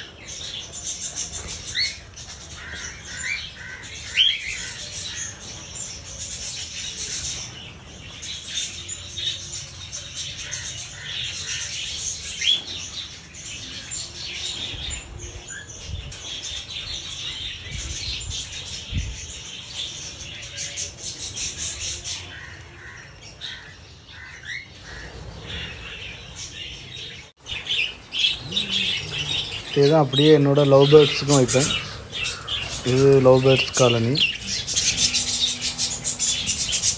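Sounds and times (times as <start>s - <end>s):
cockatiels chattering and chirping: 27.5s - 36.9s.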